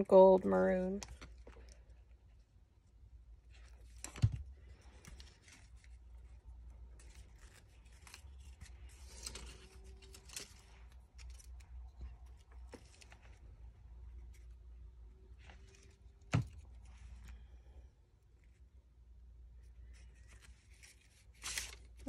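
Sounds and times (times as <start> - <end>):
cardstock strips rustling: 3.5 - 17.3, 19.6 - 22.0.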